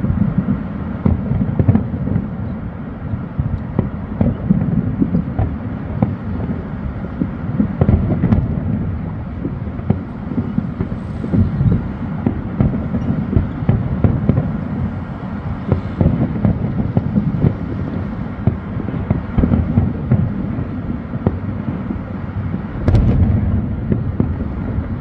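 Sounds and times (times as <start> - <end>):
fireworks bursting: 0.0 - 25.0
low rumble: 19.0 - 25.0.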